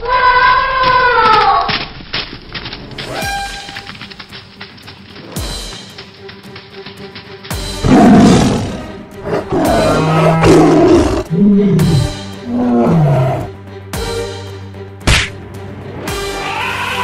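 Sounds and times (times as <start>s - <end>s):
background music: 2.4s - 17.0s
animal roars: 7.8s - 13.5s.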